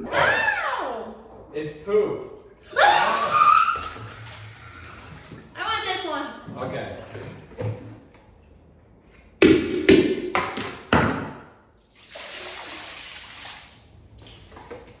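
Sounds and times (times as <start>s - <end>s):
water poured splashing into pool: 2.8s - 5.4s, 11.8s - 14.7s.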